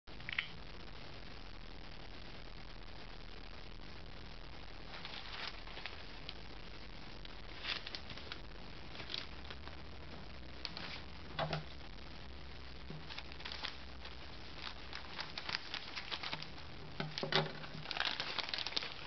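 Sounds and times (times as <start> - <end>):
plastic bag rustling and crinkling: 4.8 - 6.4, 7.4 - 9.6, 10.6 - 11.8, 12.9 - 19.0.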